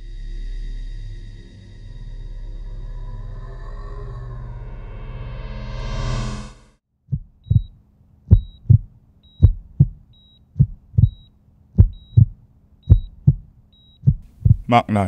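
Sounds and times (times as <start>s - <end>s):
heartbeat thumps: 7.1s - 14.8s
faint steady hum: 7.2s - 15.0s.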